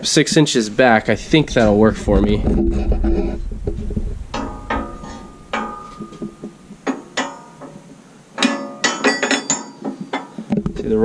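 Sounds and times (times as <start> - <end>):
metallic clanks of steel tube: 4.3 - 7.8, 8.4 - 10.3.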